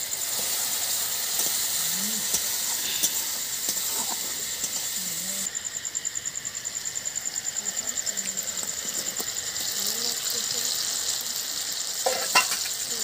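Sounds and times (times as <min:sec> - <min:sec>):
paste sizzling in hot oil: 0:00.0 - 0:13.0.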